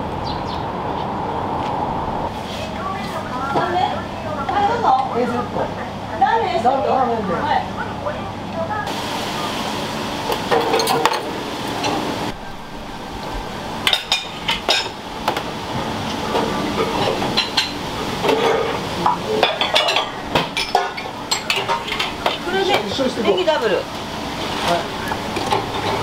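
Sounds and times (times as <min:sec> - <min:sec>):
steady background hum: 0:00.0 - 0:26.0
dishes and utensils clinking: 0:10.4 - 0:12.1, 0:13.8 - 0:15.4, 0:16.3 - 0:23.0, 0:25.4 - 0:26.0.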